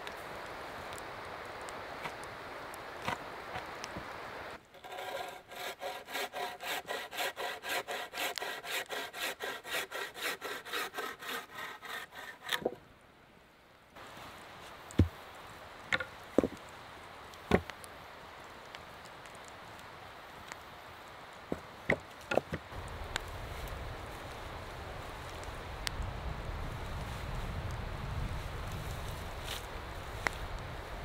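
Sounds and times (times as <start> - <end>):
frame saw cutting a log: 4.7 - 12.7
stones knocking: 15.9 - 16.6, 17.5 - 17.7, 21.5 - 22.7.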